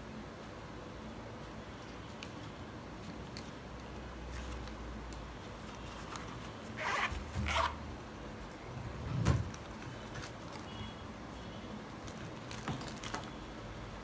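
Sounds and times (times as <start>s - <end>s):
zipper pulled shut: 6.7s - 7.8s.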